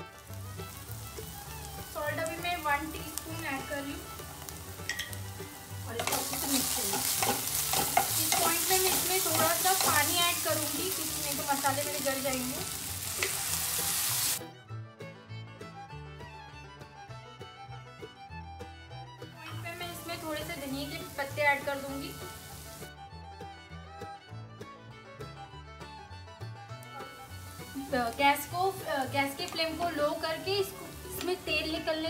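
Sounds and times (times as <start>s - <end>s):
onions sizzling in hot oil: 0.0s - 14.4s, 19.5s - 22.9s, 27.0s - 32.0s.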